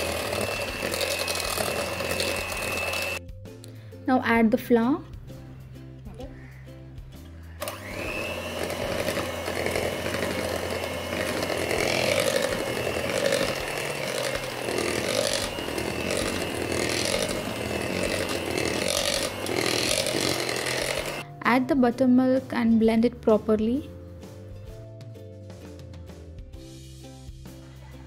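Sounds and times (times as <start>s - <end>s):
electric hand mixer whining: 0.0s - 3.2s, 7.6s - 21.3s.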